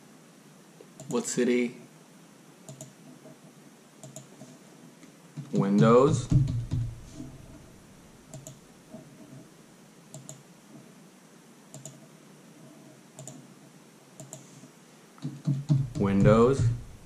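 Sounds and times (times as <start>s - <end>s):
keyboard and mouse clicks: 0.9s - 1.2s, 2.7s - 3.2s, 4.0s - 4.5s, 8.3s - 8.6s, 10.1s - 10.5s, 11.7s - 12.1s, 13.2s - 13.5s, 14.2s - 14.5s
loud thumps: 5.4s - 7.5s, 15.2s - 17.0s.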